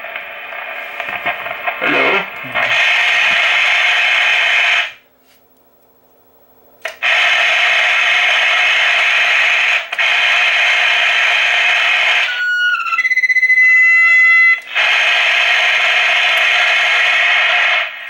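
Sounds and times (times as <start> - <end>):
walkie-talkie speaker harsh noise: 0.0 - 5.0, 6.9 - 18.0.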